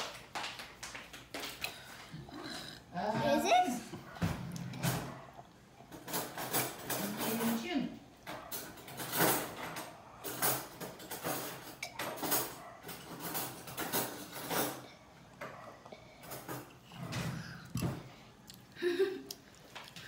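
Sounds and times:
child drinking and gulping: 1.4 - 2.9, 14.8 - 20.0.

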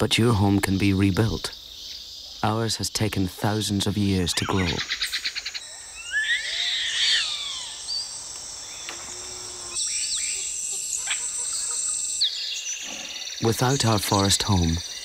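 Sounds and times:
insects chirring: 0.0 - 15.0
bird chirps: 3.6 - 15.0
high squealing animal calls: 4.2 - 13.4.

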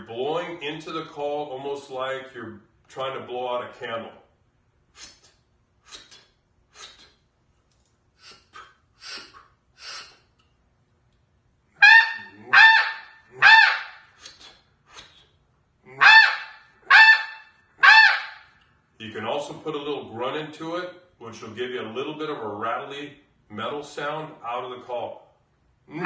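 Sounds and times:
breathy puffs of air: 8.2 - 10.4
goose call honks: 11.8 - 14.0, 15.9 - 18.4.

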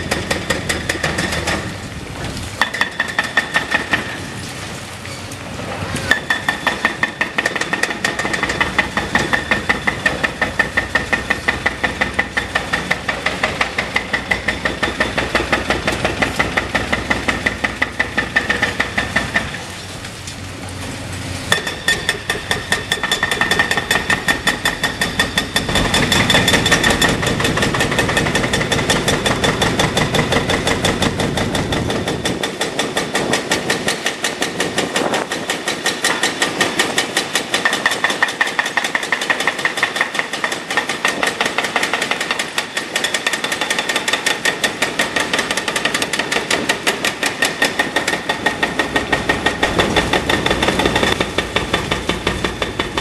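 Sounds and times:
hydraulic breaker hammering concrete: 0.0 - 1.8, 2.6 - 4.4, 6.1 - 19.7, 21.5 - 53.0
excavator engine running: 5.6 - 34.0, 44.7 - 53.0.

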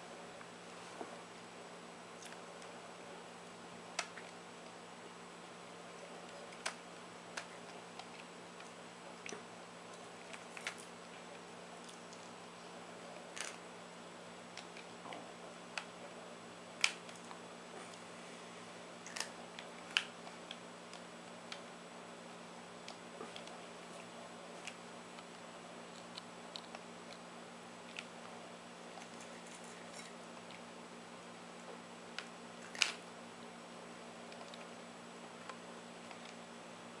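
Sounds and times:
faint steady hum: 0.0 - 37.0
cat eating crunches: 5.8 - 12.4, 16.8 - 21.6.

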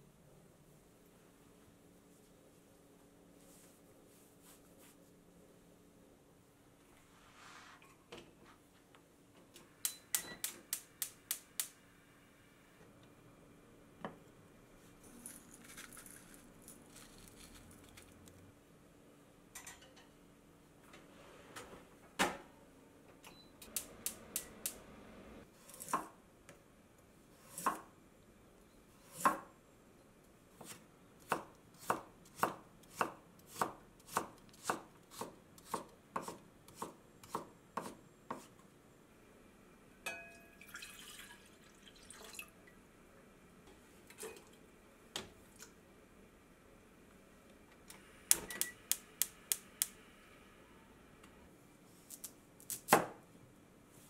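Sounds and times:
knife chopping on wooden board: 30.6 - 38.5.

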